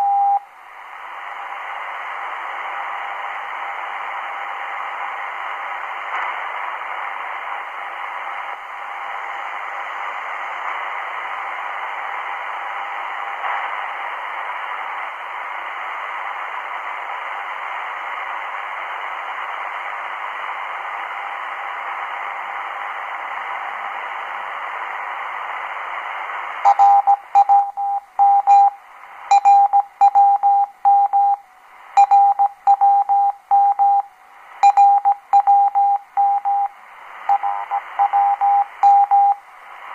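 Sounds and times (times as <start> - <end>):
morse code beeps: 0.0 - 0.4, 26.6 - 31.4, 32.0 - 36.7, 37.3 - 39.4
shortwave radio static: 0.0 - 39.9.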